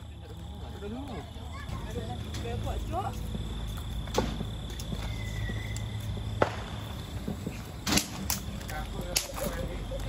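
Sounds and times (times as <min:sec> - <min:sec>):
sharp cracks: 0:05.7 - 0:07.0, 0:07.8 - 0:09.6.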